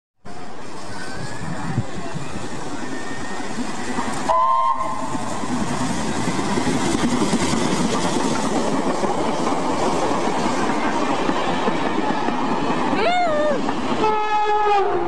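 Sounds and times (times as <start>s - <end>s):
train passing with rushing roar: 0.2s - 15.0s
train horn blast: 4.3s - 5.1s, 14.0s - 15.0s.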